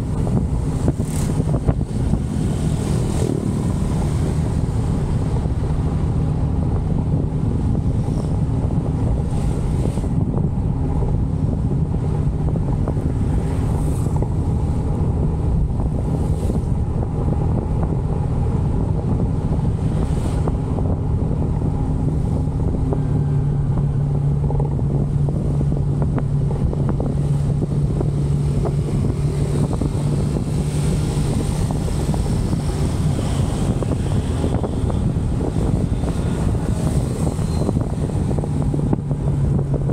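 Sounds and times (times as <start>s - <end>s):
motorcycle engine humming: 0.0s - 39.9s
wind buffeting microphone: 0.0s - 39.9s.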